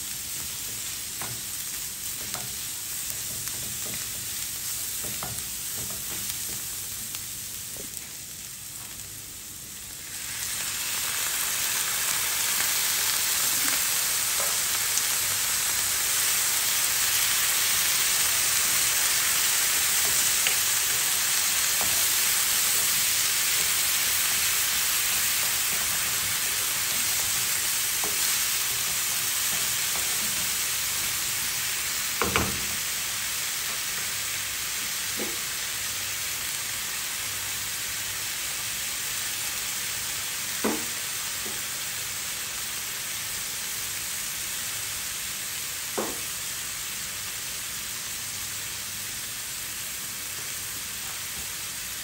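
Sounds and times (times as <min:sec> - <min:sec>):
onions sizzling in a frying pan: 0:00.0 - 0:52.0
wooden spatula knocking on pan: 0:05.0 - 0:06.6, 0:40.6 - 0:41.6, 0:46.0 - 0:46.2.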